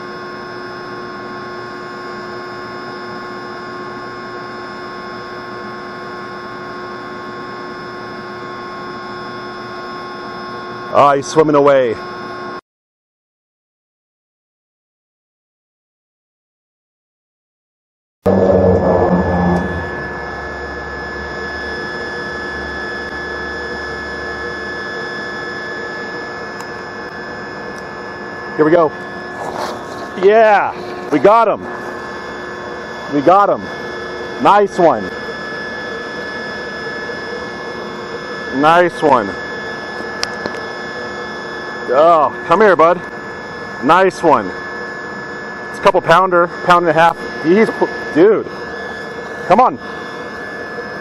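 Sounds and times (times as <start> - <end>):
low rumble: 18.3 - 20.1
steady tones: 18.3 - 23.7, 28.6 - 35.2
pump humming: 18.3 - 51.0.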